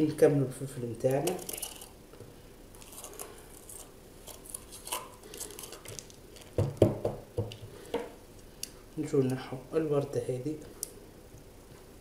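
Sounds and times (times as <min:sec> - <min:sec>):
knocks on plastic cutting board: 0:06.6 - 0:07.5.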